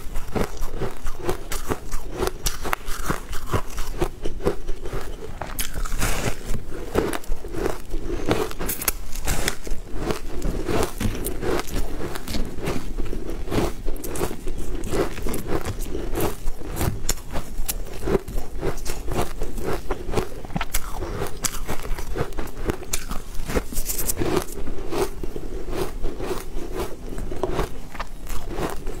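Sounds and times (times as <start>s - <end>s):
crunchy chewing: 0.0s - 29.0s.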